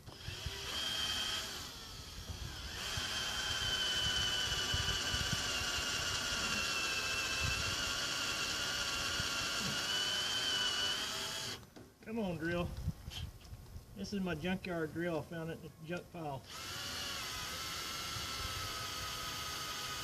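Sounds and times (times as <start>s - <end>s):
electric drill whining: 0.0s - 11.6s, 16.4s - 20.0s.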